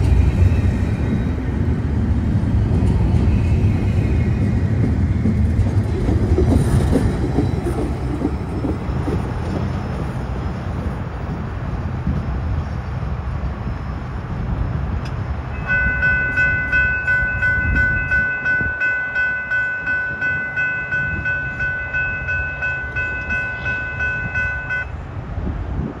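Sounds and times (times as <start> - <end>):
train cars rumbling on rails: 0.0 - 26.0
railroad crossing bell ringing: 15.5 - 25.0.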